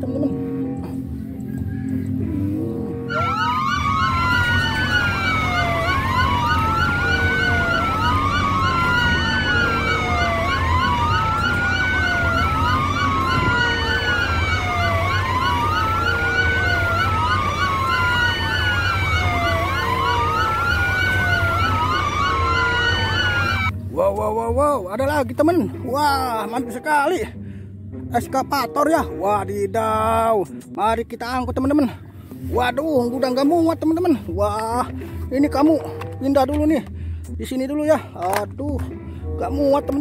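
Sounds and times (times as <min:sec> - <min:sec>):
siren wailing: 0:01.8 - 0:23.7.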